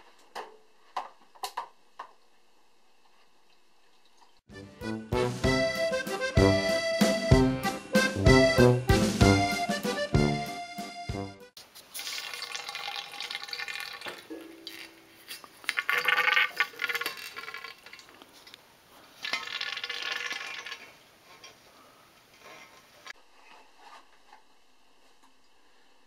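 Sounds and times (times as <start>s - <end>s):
beer splashing and gurgling: 11.9s - 14.8s, 15.6s - 18.2s, 19.2s - 21.0s.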